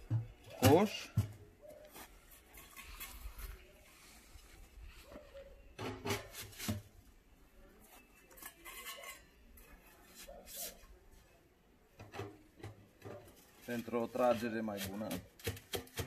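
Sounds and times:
metal pipes knocking and scraping: 5.8 - 6.9.

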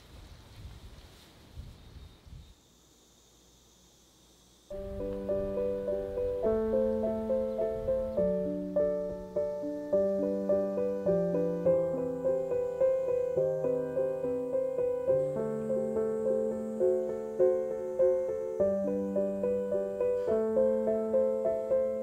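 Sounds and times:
gentle piano music: 4.7 - 22.0.

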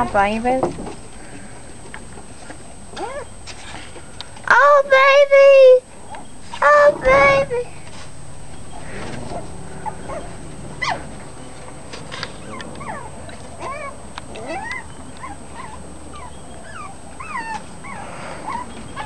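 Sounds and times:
puppies whimpering and yipping: 2.9 - 3.8, 8.6 - 19.0.

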